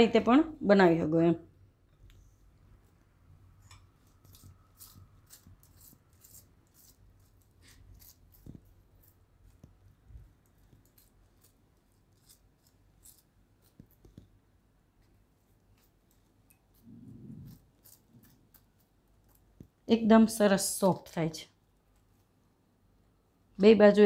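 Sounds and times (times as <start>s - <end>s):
spoon scraping butter on bread: 3.5s - 14.4s, 15.0s - 19.8s.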